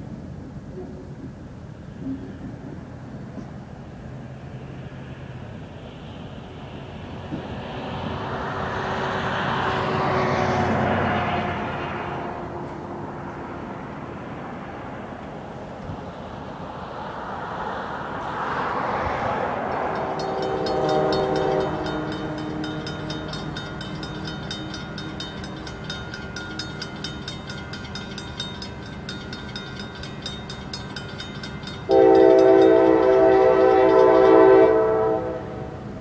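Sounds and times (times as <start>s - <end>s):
railroad crossing bell ringing: 19.4s - 36.0s
locomotive horn: 19.8s - 23.4s, 31.9s - 35.9s.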